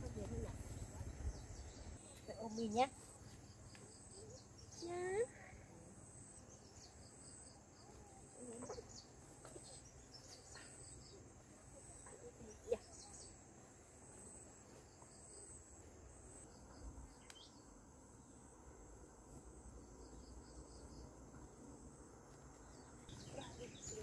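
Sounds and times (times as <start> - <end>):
bird chirps: 22.7 - 24.0.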